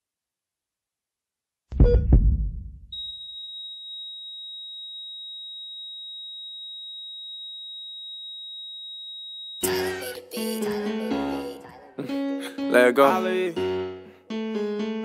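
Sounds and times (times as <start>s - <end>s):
music: 9.6s - 15.0s.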